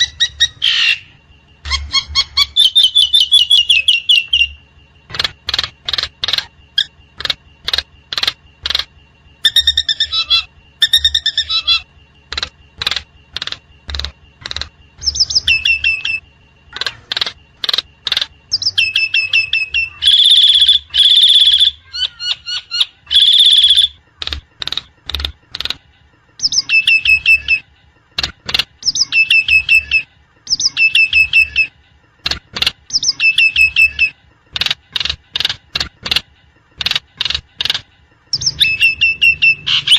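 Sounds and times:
mynas calling: 0.0s - 25.8s, 36.8s - 39.9s.

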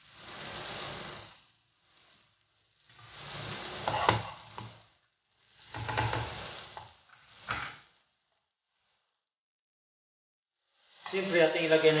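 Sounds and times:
spatula scraping a pan: 0.0s - 8.0s
sauce sizzling: 0.0s - 9.2s, 10.6s - 12.0s.

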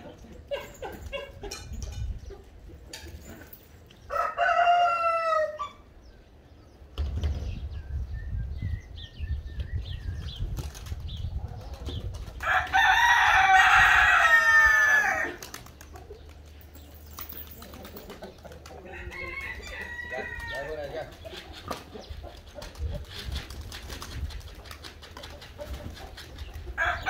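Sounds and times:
rooster crowing: 4.1s - 5.8s, 12.4s - 15.4s, 18.9s - 20.8s
pigeon wings flapping: 10.5s - 11.2s, 15.3s - 16.6s, 22.5s - 26.5s.

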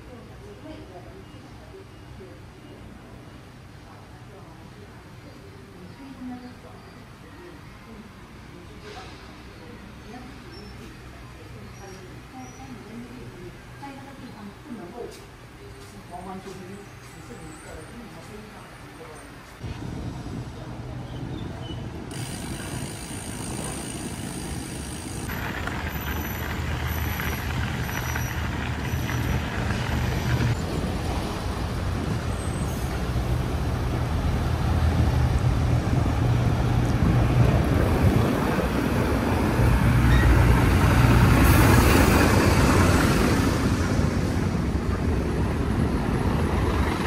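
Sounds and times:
lorry diesel engines rumbling: 0.0s - 47.0s.

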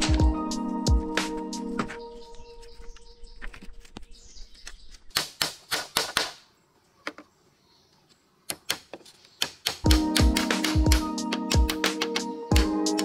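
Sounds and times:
music: 0.0s - 2.9s, 9.8s - 13.0s.

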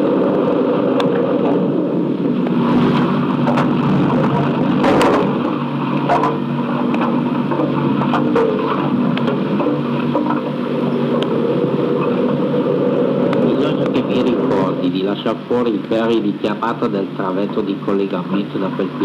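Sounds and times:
concrete mixer engine hum: 0.0s - 19.0s
sharp knocks: 3.4s - 10.4s.

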